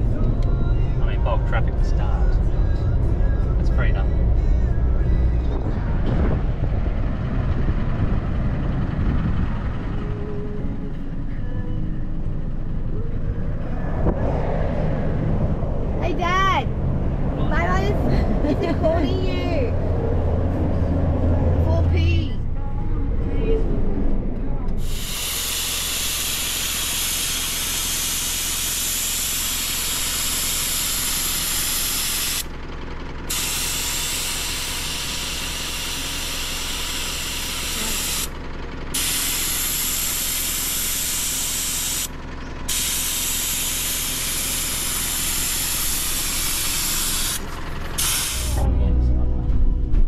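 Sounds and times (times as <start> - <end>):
air hissing out of tyre: 24.8 - 32.5, 33.3 - 42.1, 42.7 - 48.6.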